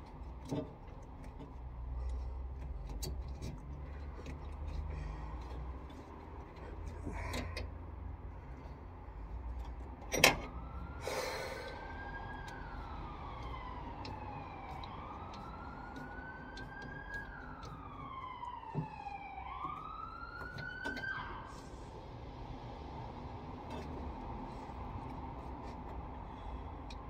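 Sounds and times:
emergency siren wailing: 0:10.2 - 0:24.0.

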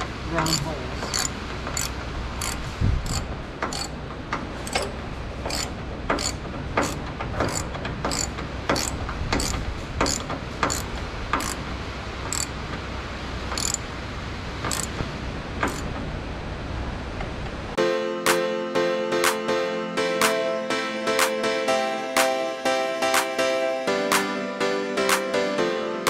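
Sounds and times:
ratchet wrench clicking: 0:00.4 - 0:04.0, 0:05.5 - 0:11.6, 0:12.3 - 0:12.5, 0:13.5 - 0:13.8, 0:14.7 - 0:15.0, 0:15.6 - 0:15.9.

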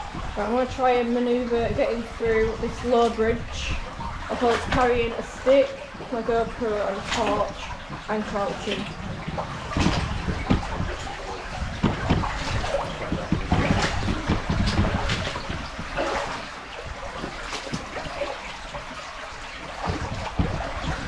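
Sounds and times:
water trickling: 0:00.0 - 0:21.0
footsteps splashing in water: 0:04.0 - 0:21.0
knocks and scrapes: 0:07.1 - 0:19.0, 0:19.6 - 0:21.0.

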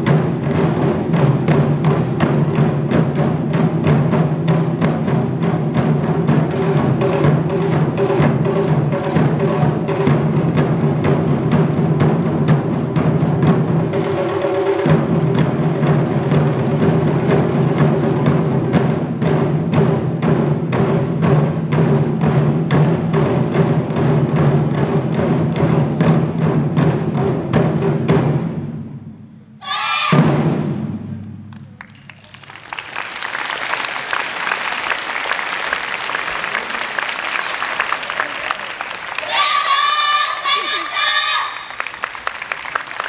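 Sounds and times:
barrel drums beating: 0:00.0 - 0:32.1
audience applauding: 0:31.5 - 0:43.0.

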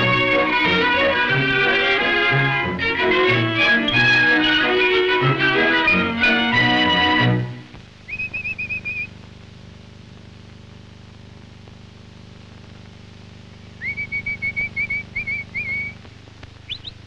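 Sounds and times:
steady low hum: 0:00.0 - 0:17.0
person whistling commands: 0:08.1 - 0:09.1, 0:13.8 - 0:16.0.

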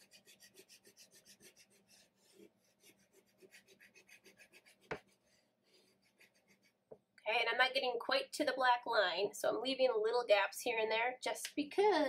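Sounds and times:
chalk pastel scratching paper: 0:00.0 - 0:06.8.

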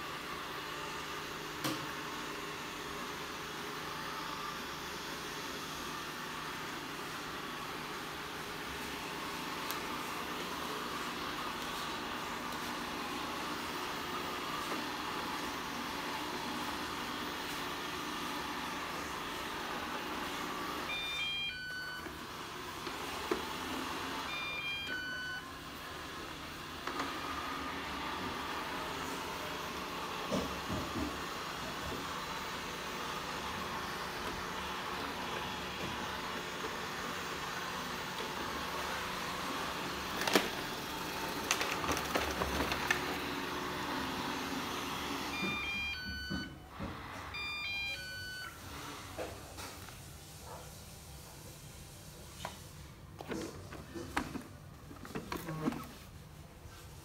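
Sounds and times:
robot vacuum whirring: 0:00.1 - 0:49.9
electronic beep tune: 0:47.4 - 0:48.5.

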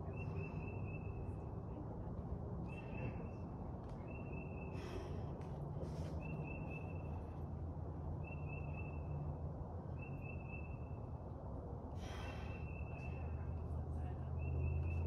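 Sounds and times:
steady low rumble: 0:00.0 - 0:08.3.

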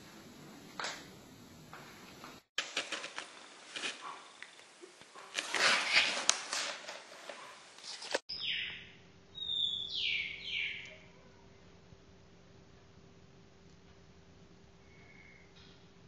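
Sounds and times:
rustling scratchy noise with clicks: 0:01.8 - 0:08.3.

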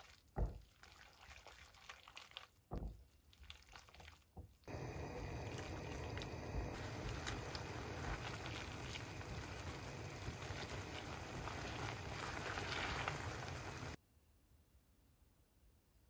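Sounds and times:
pasta sizzling in a hot pan: 0:04.7 - 0:14.0.

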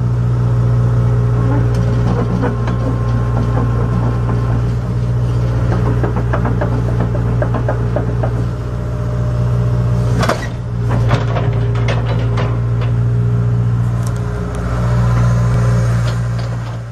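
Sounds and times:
diesel engine running: 0:00.0 - 0:16.9
metal tracks clanking and squeaking: 0:01.4 - 0:08.7, 0:10.0 - 0:13.3, 0:14.7 - 0:16.9.

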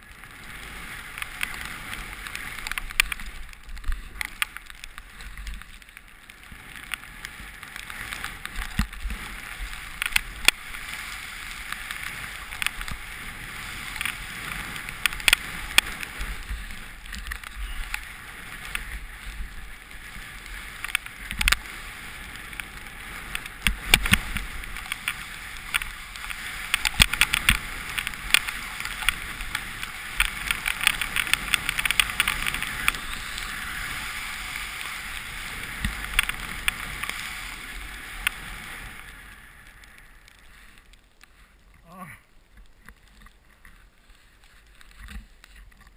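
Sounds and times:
snowboard hissing through snow: 0:00.2 - 0:03.4, 0:06.4 - 0:40.8
sharp clicks and knocks: 0:23.3 - 0:33.0.

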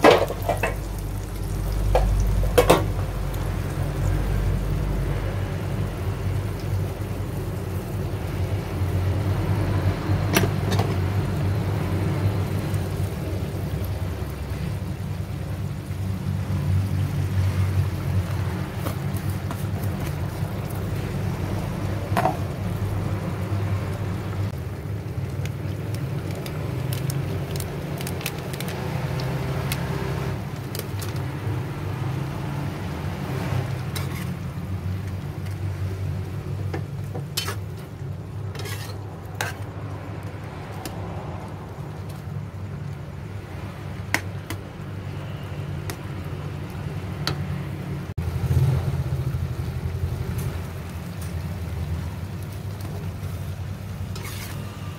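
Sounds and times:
eggplant sizzling and bubbling: 0:00.0 - 0:54.9
spatula scraping a pan: 0:33.9 - 0:34.6, 0:37.2 - 0:39.8, 0:54.1 - 0:54.9.

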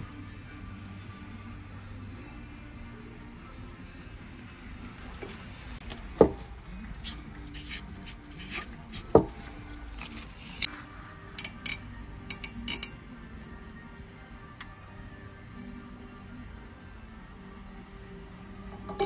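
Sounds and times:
faint background music: 0:00.0 - 0:19.0
metal tools knocking and clicking: 0:11.4 - 0:13.0, 0:18.7 - 0:19.0.

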